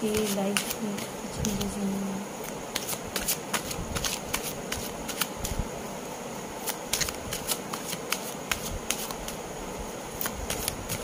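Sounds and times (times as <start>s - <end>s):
cards being shuffled: 0.0s - 1.8s, 2.4s - 5.6s, 6.6s - 9.4s, 10.2s - 11.0s
steady hiss: 0.0s - 11.0s.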